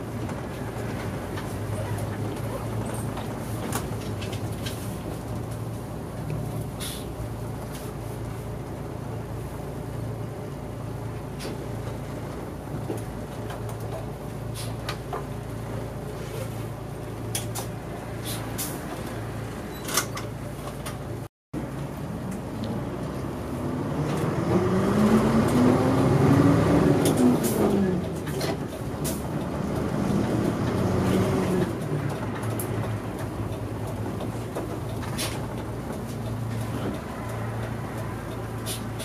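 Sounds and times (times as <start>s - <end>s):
bus engine drone: 0.0s - 39.0s
interior clicks and rattles: 27.0s - 39.0s.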